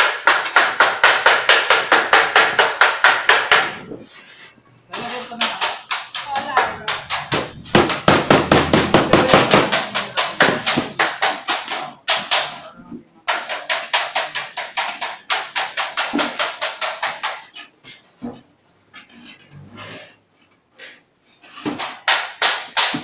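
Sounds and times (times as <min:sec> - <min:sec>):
hammer striking sheet metal: 0:00.0 - 0:03.9, 0:04.9 - 0:17.5, 0:21.6 - 0:23.0.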